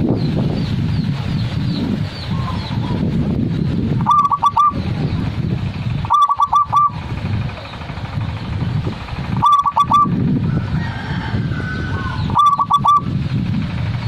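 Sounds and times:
low background rumble: 0.0 - 14.0
dove cooing: 4.0 - 4.8, 6.0 - 7.0, 9.4 - 10.2, 11.1 - 13.1.

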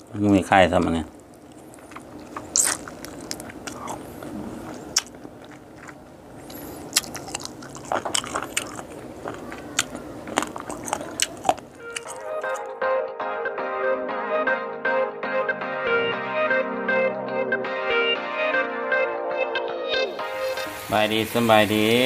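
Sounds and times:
person chewing with crunches: 0.8 - 12.7
wet mouth clicks: 1.3 - 12.7.

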